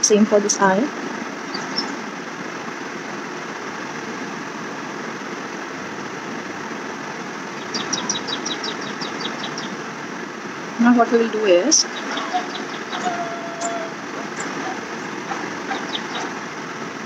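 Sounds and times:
appliance humming and hissing: 0:00.0 - 0:17.0
bird chirping rapidly: 0:01.4 - 0:02.1, 0:07.5 - 0:09.8, 0:11.8 - 0:16.5.

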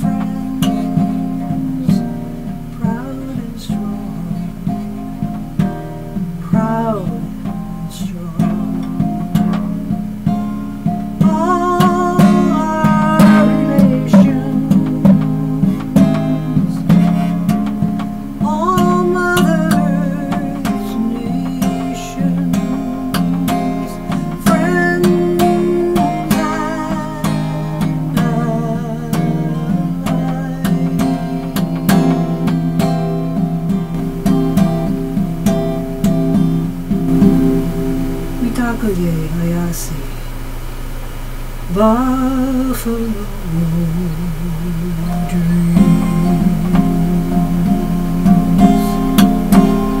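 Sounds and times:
acoustic guitar folk song: 0:00.0 - 0:50.0
wordless singing: 0:00.0 - 0:50.0.

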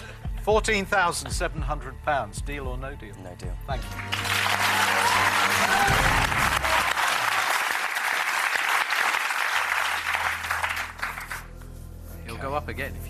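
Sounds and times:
audience clapping: 0:03.8 - 0:11.6.

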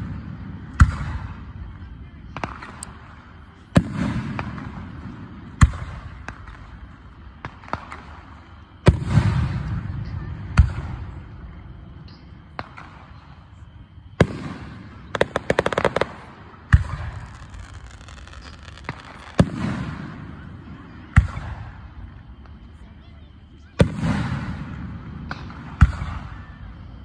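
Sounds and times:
crackling firework pops: 0:00.0 - 0:01.4, 0:02.3 - 0:11.3, 0:11.9 - 0:22.7, 0:23.7 - 0:27.0
firework shells booming: 0:02.3 - 0:11.3, 0:14.1 - 0:22.5, 0:23.8 - 0:26.4.

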